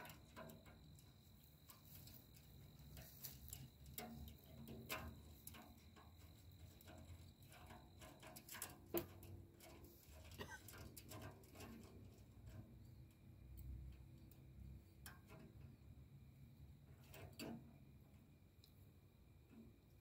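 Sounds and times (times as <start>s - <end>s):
small metal clicks and taps: 0.0s - 15.7s, 18.6s - 18.8s.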